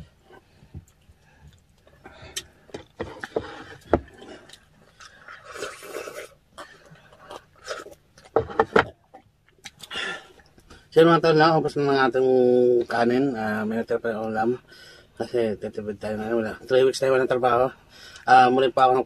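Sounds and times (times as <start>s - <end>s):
chewing: 0.8s - 8.4s.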